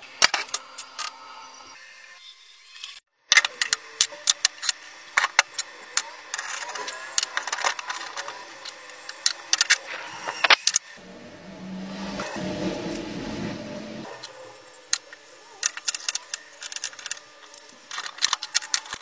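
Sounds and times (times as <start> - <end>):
low steady hum: 11.0 - 14.2.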